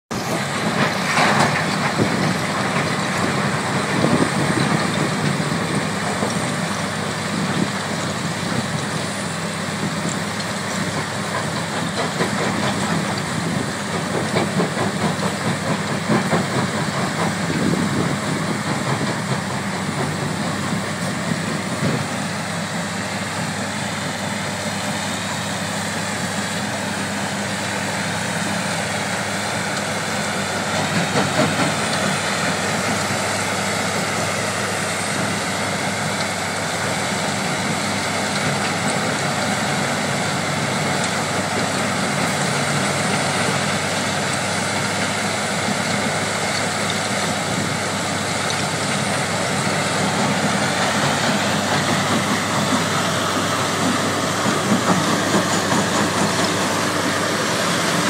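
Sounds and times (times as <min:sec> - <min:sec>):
heavy machine drone: 0:00.1 - 0:58.0
wheel loader running: 0:00.1 - 0:58.0.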